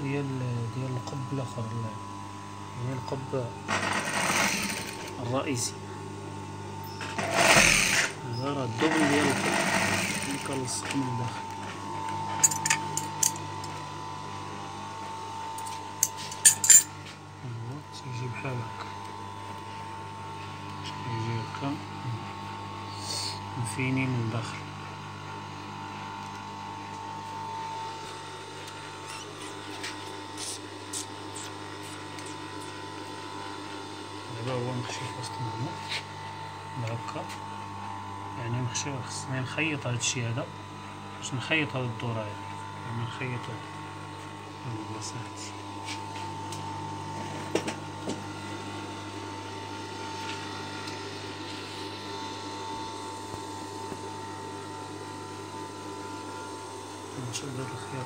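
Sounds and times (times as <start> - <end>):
sewing machine motor hum: 2.8 - 5.7, 6.7 - 13.9.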